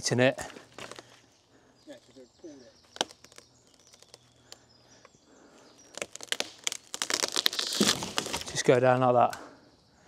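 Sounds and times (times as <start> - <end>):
wood cracking: 0.5 - 1.2, 2.8 - 4.7, 5.4 - 9.4
tree trunk snapping and falling: 2.9 - 4.6, 5.8 - 8.8.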